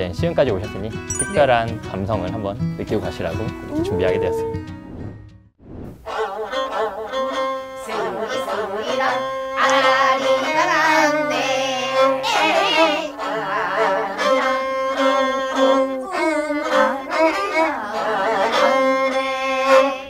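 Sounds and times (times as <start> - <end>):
bowed zither melody: 1.1 - 2.6.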